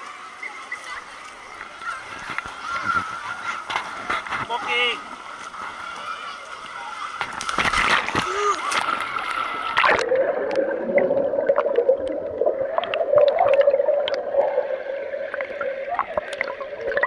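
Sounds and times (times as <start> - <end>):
water splash: 7.2 - 17.0
bubble pops: 9.8 - 14.4
underwater clicks: 11.4 - 14.4, 15.3 - 17.0.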